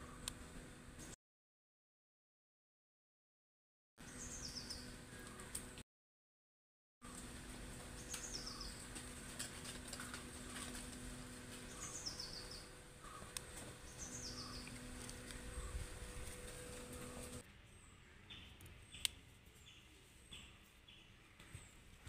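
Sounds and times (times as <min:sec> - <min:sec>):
outdoor low hum: 0:00.0 - 0:01.2, 0:04.0 - 0:05.8, 0:07.0 - 0:22.0
bird chirping: 0:04.0 - 0:05.5, 0:08.0 - 0:08.9, 0:11.6 - 0:22.0.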